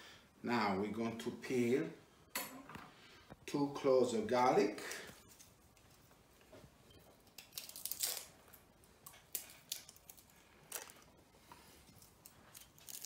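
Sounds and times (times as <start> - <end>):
garlic skins crackling and tearing: 7.2 - 11.1, 11.9 - 13.0.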